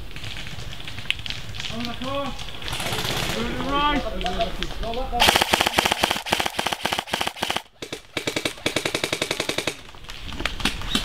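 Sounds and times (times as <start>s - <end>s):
airsoft rifle full-auto bursts: 2.7s - 3.4s, 5.2s - 9.8s.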